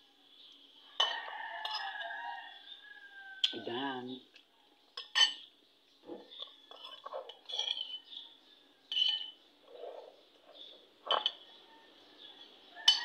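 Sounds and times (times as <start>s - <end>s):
metal spoon scraping a bowl: 6.3s - 8.2s, 8.9s - 11.6s.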